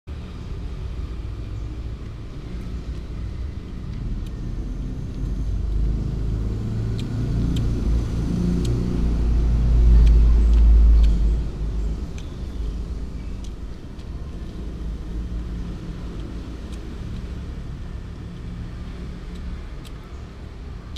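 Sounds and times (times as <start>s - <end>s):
heavy low rumble: 0.5s - 20.0s.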